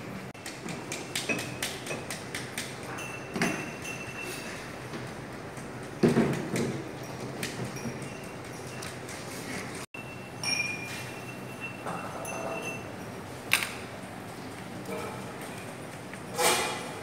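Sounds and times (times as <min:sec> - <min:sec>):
bottles and tools clicking: 0:00.4 - 0:09.8, 0:10.4 - 0:13.8.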